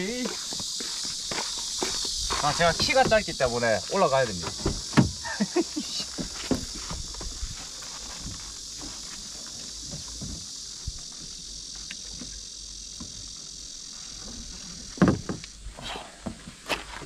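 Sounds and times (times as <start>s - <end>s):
high-pitched insect chorus: 0.0s - 17.0s
strap knocking and rustling: 15.0s - 15.5s.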